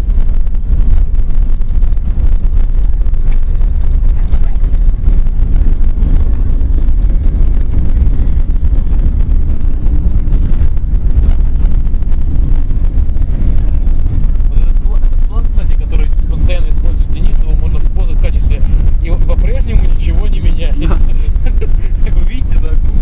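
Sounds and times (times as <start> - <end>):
vehicle road and engine rumble: 0.0 - 23.0
wind buffeting microphone: 0.0 - 23.0.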